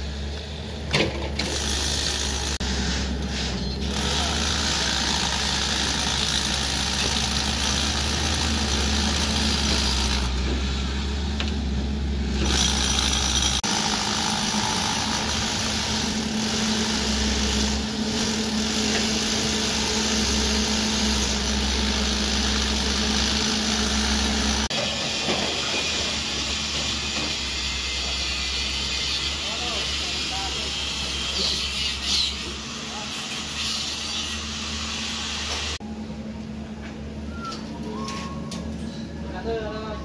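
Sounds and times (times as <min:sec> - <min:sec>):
construction machine hum: 0:00.0 - 0:33.5
power drill boring into concrete: 0:01.4 - 0:02.7, 0:03.3 - 0:10.4, 0:12.3 - 0:24.8.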